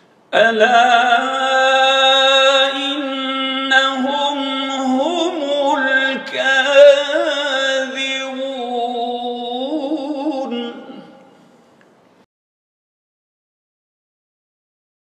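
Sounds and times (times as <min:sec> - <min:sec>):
man chanting melodically: 0:00.4 - 0:11.4.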